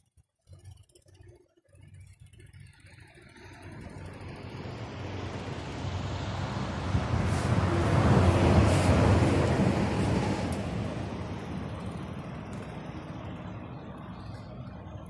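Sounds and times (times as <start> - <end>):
road vehicle approaching: 1.9 - 15.0.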